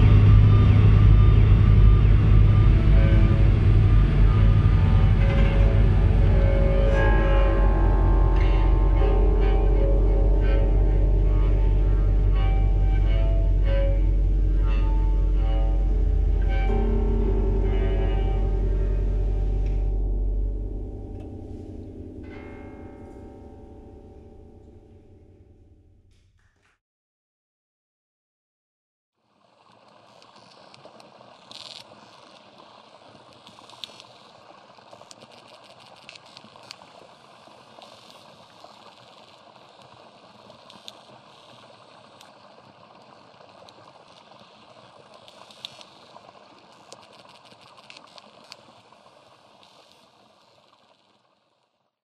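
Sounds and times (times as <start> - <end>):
steady rushing noise: 0.0 - 22.2
crackles and clicks: 0.0 - 25.0, 29.4 - 51.9.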